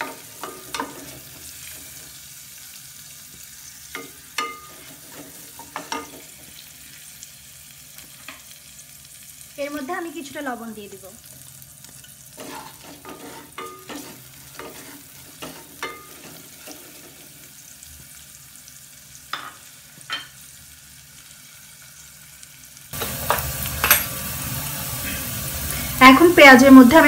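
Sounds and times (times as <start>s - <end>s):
onions sizzling in oil: 0.0s - 27.0s.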